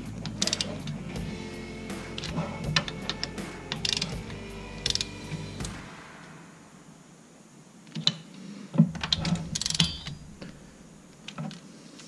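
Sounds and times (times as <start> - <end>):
ratcheting wrench clicking: 0.0 - 1.0, 2.2 - 5.2, 9.0 - 10.2.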